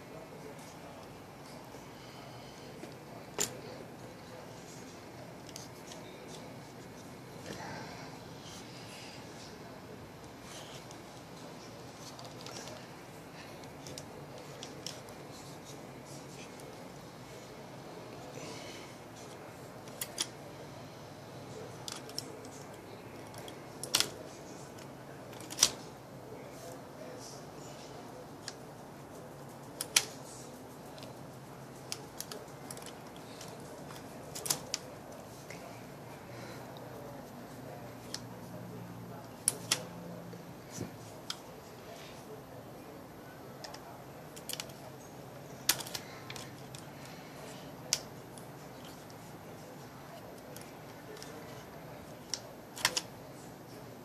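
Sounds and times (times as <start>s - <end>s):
rifle parts clicking: 23.2s - 25.8s, 45.6s - 46.8s, 52.2s - 53.1s
rifle parts clicking and snapping: 24.8s - 25.8s, 31.9s - 34.8s, 44.4s - 44.8s, 45.6s - 46.8s, 52.2s - 53.1s.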